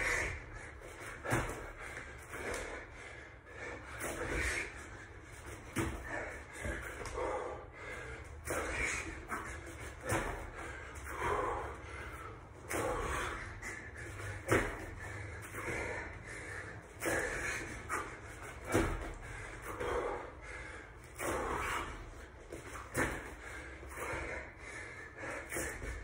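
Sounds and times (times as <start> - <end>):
man breathing hard: 0.0 - 26.0
thuds on floor mat: 18.6 - 19.3.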